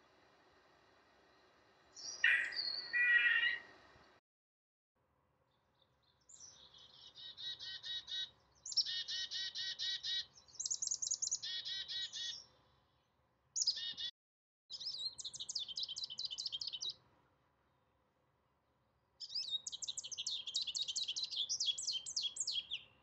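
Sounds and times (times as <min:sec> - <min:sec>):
goldfinch twittering song: 0:02.0 - 0:03.7, 0:05.5 - 0:12.8, 0:13.6 - 0:14.1, 0:14.7 - 0:17.0, 0:19.2 - 0:23.0
chickadee call: 0:02.2 - 0:03.7.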